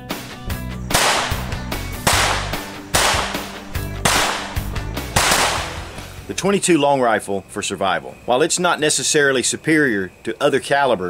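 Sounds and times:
background music: 0:00.0 - 0:06.6
pistol shots echoing: 0:00.9 - 0:05.9.

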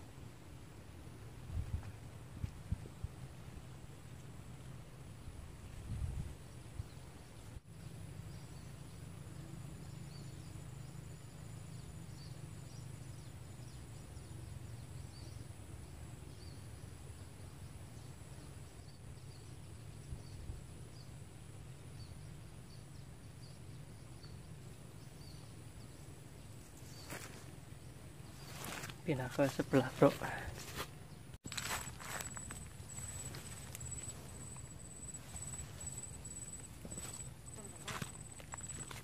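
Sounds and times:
low outdoor rumble: 0:00.0 - 0:39.0
high insect drone: 0:07.7 - 0:30.8, 0:31.5 - 0:39.0
small high chirps: 0:31.4 - 0:39.0.

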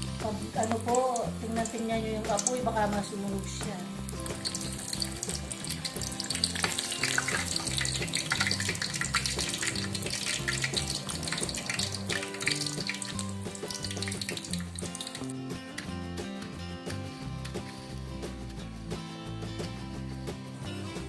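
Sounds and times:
deep-frying sizzle in oil: 0:00.0 - 0:15.9
background music with low notes: 0:00.0 - 0:21.0.

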